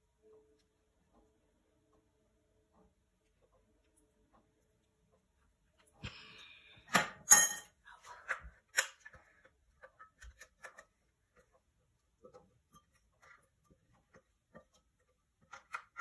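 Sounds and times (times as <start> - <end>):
sharp clinks on glass: 7.2 - 7.7.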